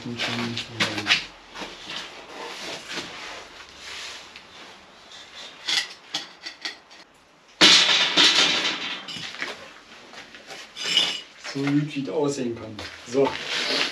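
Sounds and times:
metal gate scraping and knocking: 0:07.8 - 0:09.4.

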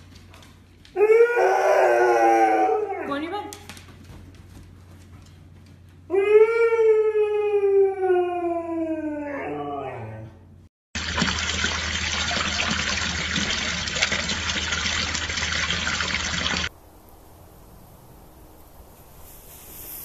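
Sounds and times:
husky howling: 0:00.9 - 0:03.3, 0:06.1 - 0:10.4
water pouring from spout: 0:11.0 - 0:16.7.

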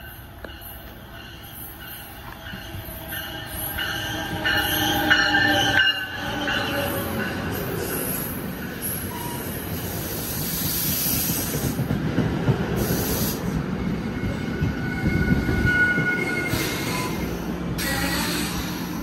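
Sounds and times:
train wheels rumbling on rails: 0:00.0 - 0:19.0
wheel and brake squeal: 0:14.2 - 0:18.8.

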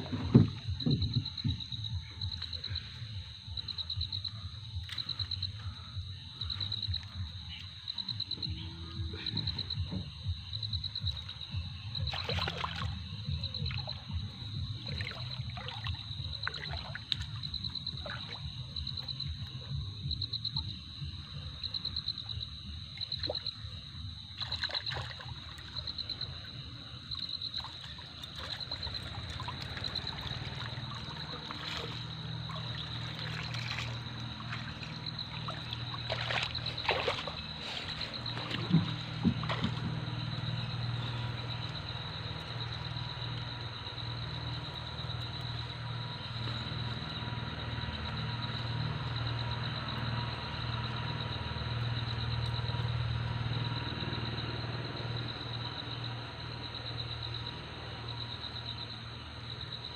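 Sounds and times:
water splashing and dripping: 0:04.3 - 0:08.4, 0:10.8 - 0:53.8.

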